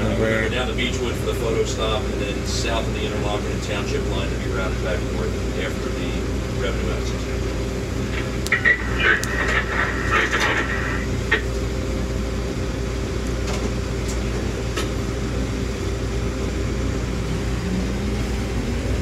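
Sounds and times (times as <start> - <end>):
railcar hum: 0.0 - 19.0.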